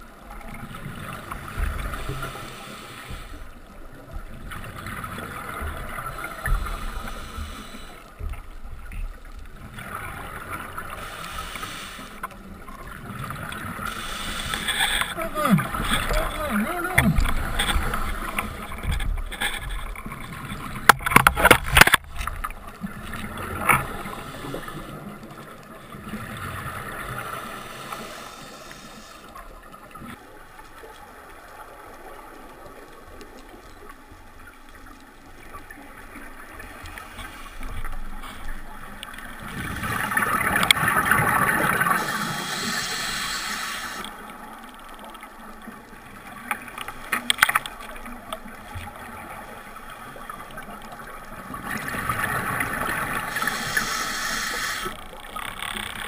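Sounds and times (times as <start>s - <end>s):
scuba diver breathing through regulator: 1.8s - 3.5s, 6.2s - 8.1s, 10.9s - 12.3s, 13.8s - 16.4s, 23.8s - 25.1s, 27.2s - 29.4s, 41.7s - 44.1s, 53.0s - 55.0s
sharp clicks and knocks: 20.8s - 22.1s.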